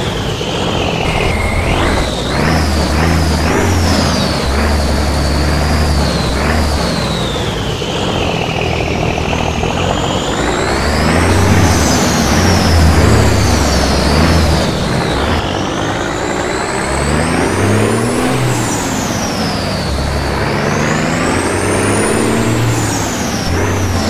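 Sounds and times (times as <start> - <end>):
low steady drone: 0.8 - 7.1.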